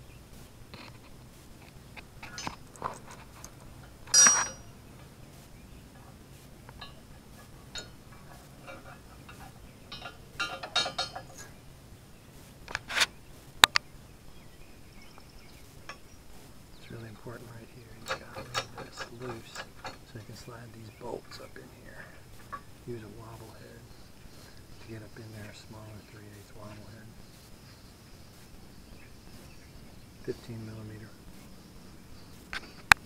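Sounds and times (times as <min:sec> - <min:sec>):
metal clinks and clanks: 0:02.2 - 0:05.2, 0:06.0 - 0:11.6, 0:16.8 - 0:27.4.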